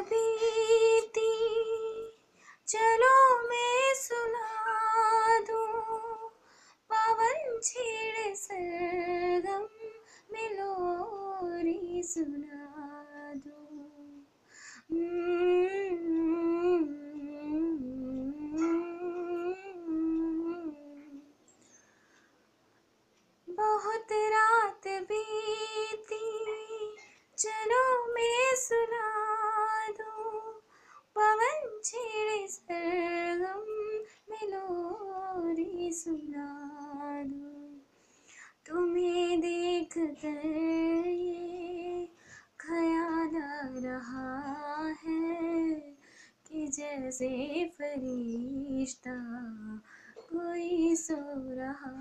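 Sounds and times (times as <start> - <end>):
woman singing unaccompanied: 0.0 - 21.4, 23.4 - 37.9, 38.6 - 52.0.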